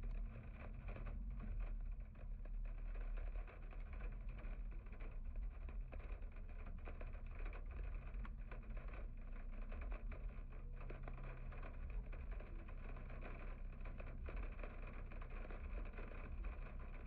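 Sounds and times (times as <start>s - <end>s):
car rumble inside cabin: 0.0s - 17.0s
faint ticks and taps: 0.0s - 17.0s.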